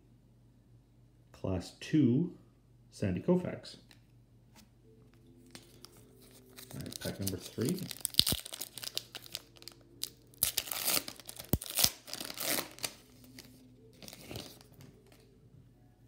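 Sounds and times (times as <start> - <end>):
foil wrapper tearing and crinkling: 5.5 - 14.8.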